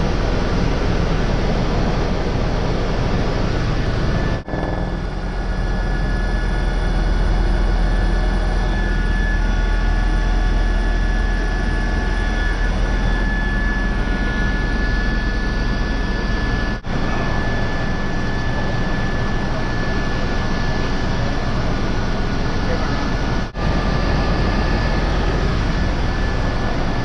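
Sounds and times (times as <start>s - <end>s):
helicopter rotor and engine rumble: 0.0s - 27.0s
thin high whine: 3.8s - 20.2s.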